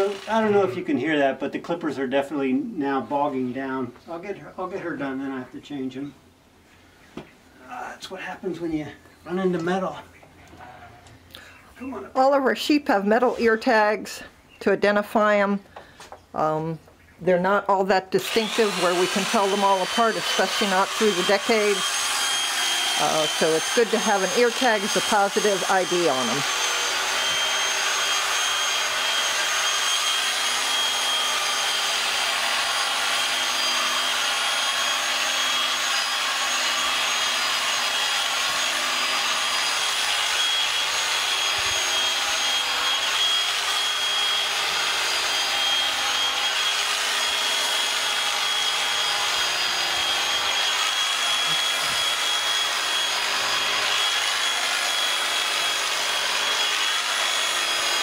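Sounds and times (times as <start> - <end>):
electric clippers whining: 0.0 - 0.9, 18.2 - 58.0.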